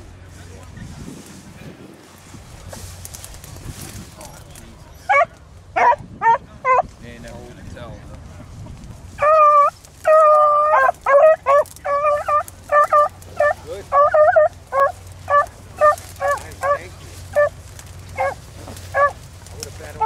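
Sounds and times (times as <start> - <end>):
hounds baying: 4.9 - 6.9, 9.2 - 20.0.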